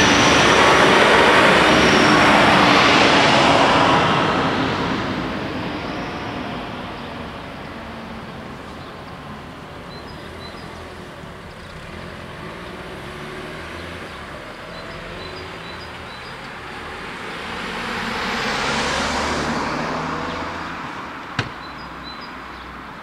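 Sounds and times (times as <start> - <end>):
road traffic: 0.0 - 23.0
faint bird chirps: 9.9 - 11.0, 14.1 - 16.5, 21.5 - 22.7
car driving past: 11.5 - 22.2.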